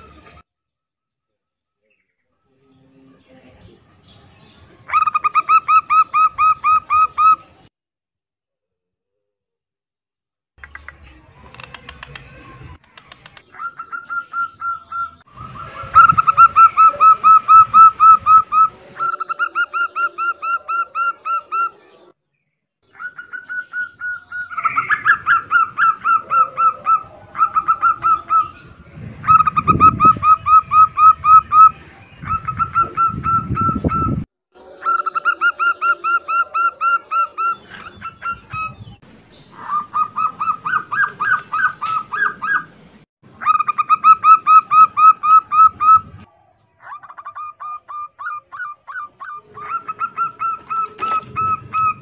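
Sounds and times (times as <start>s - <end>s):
doves cooing: 13.0s - 22.1s, 22.9s - 42.8s, 43.4s - 52.0s.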